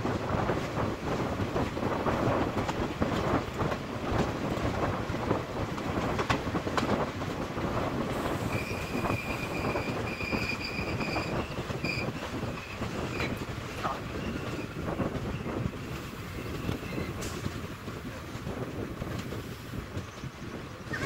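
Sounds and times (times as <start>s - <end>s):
train wheels rumbling on track: 0.0s - 21.0s
wheel squeal: 8.3s - 13.5s, 14.1s - 15.6s.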